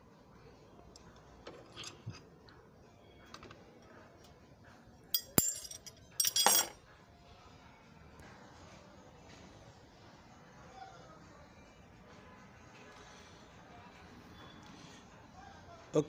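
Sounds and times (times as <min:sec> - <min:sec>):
wrenches clinking against metal: 0:01.5 - 0:02.2, 0:05.1 - 0:06.8.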